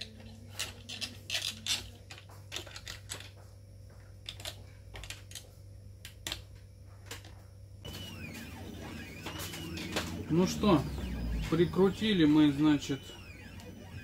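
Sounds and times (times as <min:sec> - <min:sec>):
small parts clicking and tapping: 0:00.0 - 0:03.4, 0:04.2 - 0:07.4.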